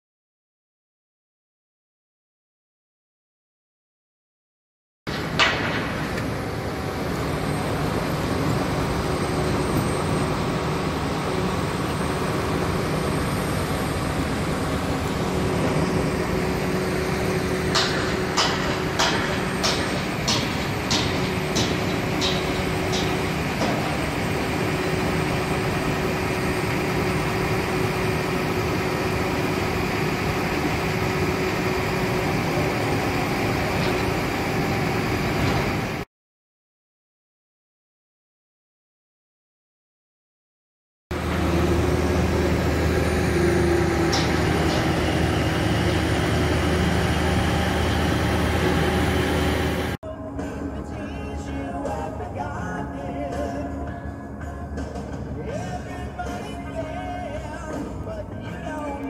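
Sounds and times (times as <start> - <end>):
sharp metallic knocks: 5.1 - 6.2, 17.6 - 24.1, 43.8 - 45.4
heavy machinery engine humming: 5.1 - 36.0, 41.1 - 59.0.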